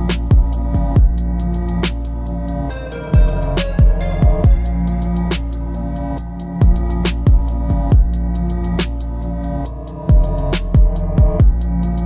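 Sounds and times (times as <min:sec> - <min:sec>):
electronic music with steady beat: 0:00.0 - 0:12.0.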